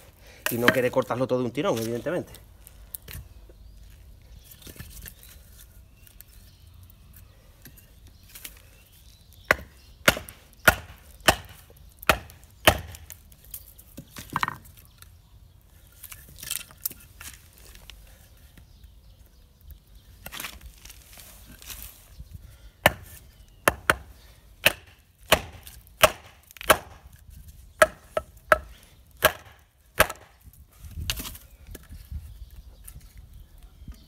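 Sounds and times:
knife chopping dry wood: 0:00.4 - 0:01.1, 0:09.4 - 0:13.2, 0:22.8 - 0:27.2, 0:27.8 - 0:31.4.

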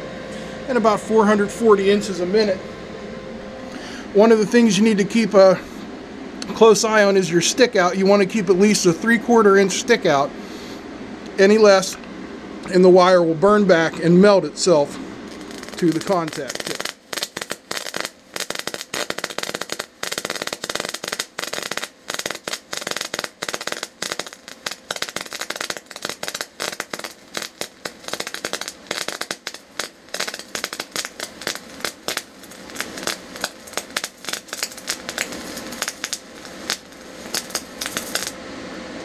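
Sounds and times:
welding arc crackling and hissing: 0:12.8 - 0:38.4.

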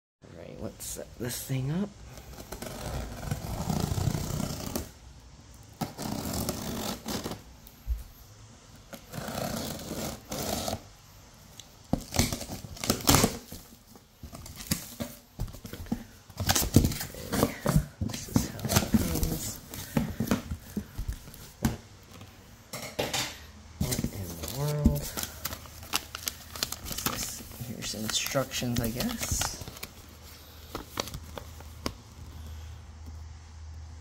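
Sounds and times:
cardboard flaps rustling: 0:11.9 - 0:22.3, 0:23.8 - 0:32.3.

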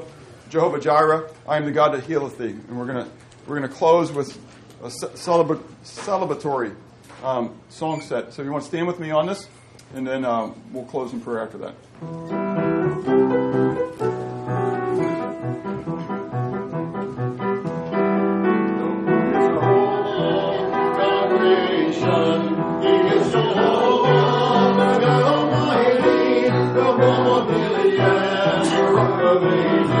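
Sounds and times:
piano and guitar accompaniment: 0:12.0 - 0:30.0
congregation singing: 0:18.8 - 0:30.0.

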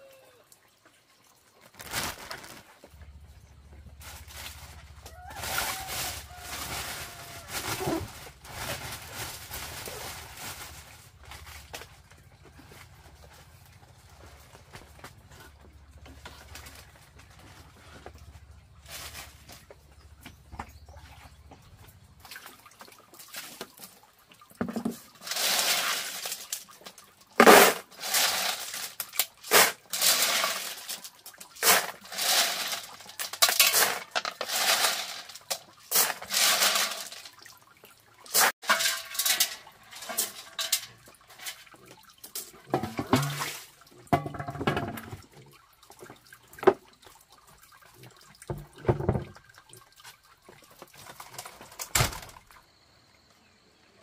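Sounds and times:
water splashing: 0:20.8 - 0:51.7.

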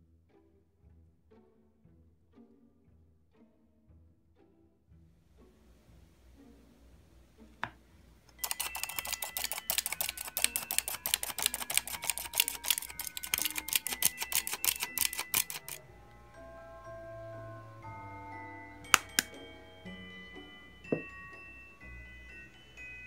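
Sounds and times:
soft background music: 0:00.0 - 0:23.0
flour sifter clicking and rasping: 0:08.3 - 0:15.8.

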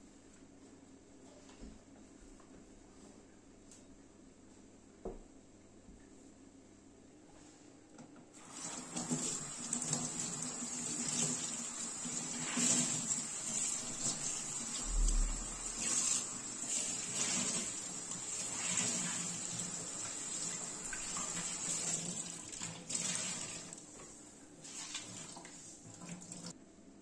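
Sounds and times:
tap water splashing in sink: 0:08.4 - 0:23.8.

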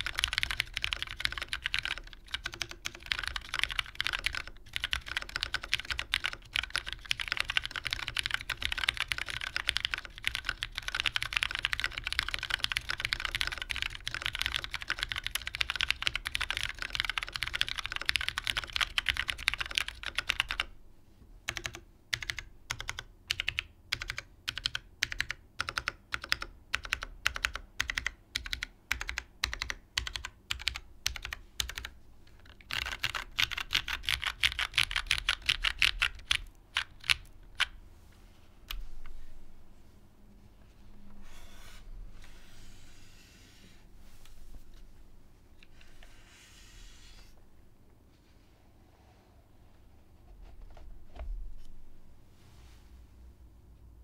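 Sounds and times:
mechanical keyboard typing: 0:00.0 - 0:20.7, 0:21.5 - 0:37.7.

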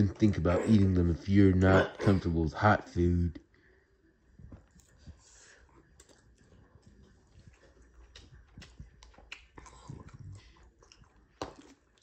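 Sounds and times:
chewing noodles: 0:04.6 - 0:12.0.

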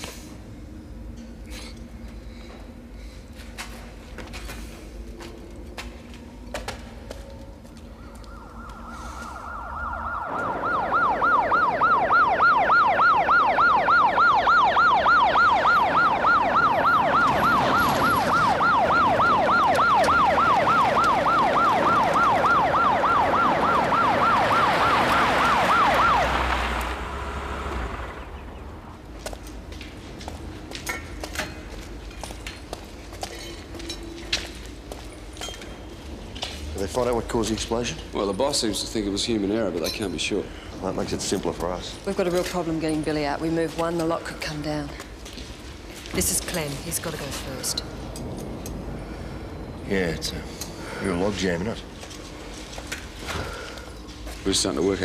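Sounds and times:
emergency vehicle siren: 0:04.8 - 0:30.8, 0:40.5 - 0:55.0.

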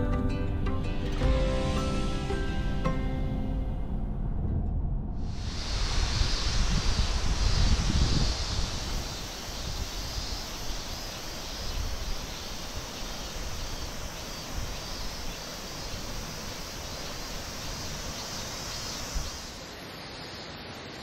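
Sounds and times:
wind in trees: 0:01.1 - 0:21.0
wind buffeting microphone: 0:04.0 - 0:10.7.

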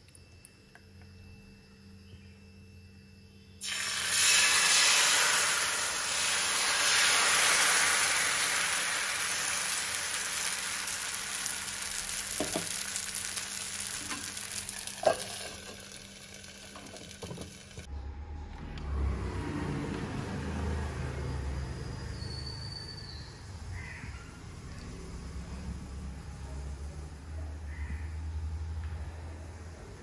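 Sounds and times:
batter sizzling in a pan: 0:03.6 - 0:17.9.

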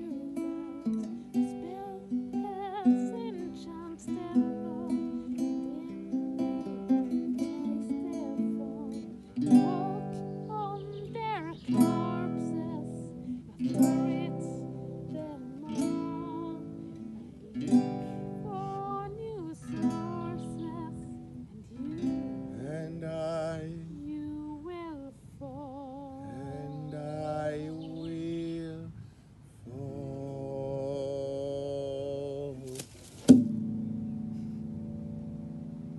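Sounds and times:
woman singing: 0:00.0 - 0:28.6
acoustic guitar chords: 0:00.0 - 0:35.9.

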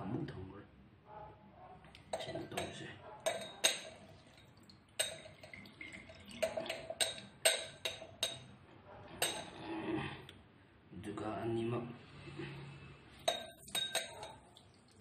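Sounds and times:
juice dripping into glass: 0:03.6 - 0:08.0, 0:13.2 - 0:15.0.

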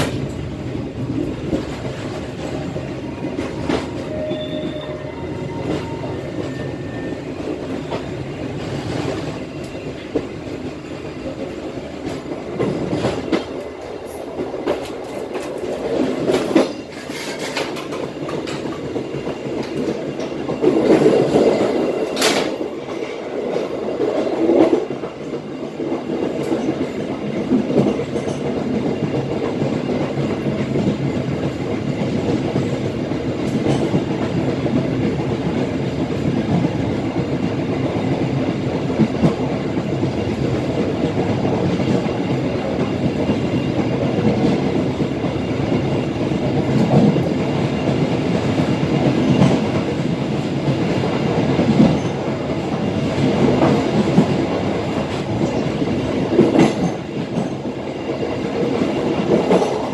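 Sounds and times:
train rolling rumble: 0:00.0 - 0:59.9
wheels clicking over rail joints: 0:11.2 - 0:26.9.

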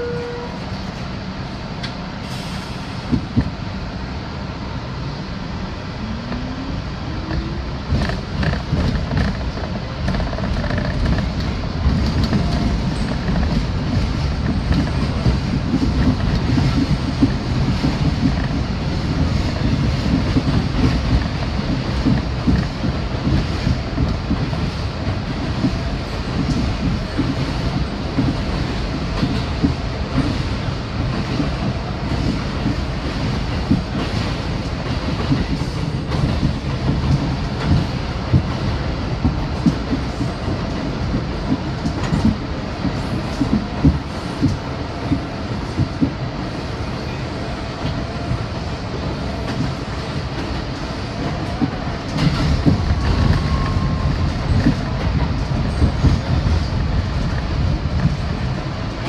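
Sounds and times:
subway car rumble: 0:00.0 - 0:59.0
wheels clicking over rail joints: 0:07.2 - 0:46.3.

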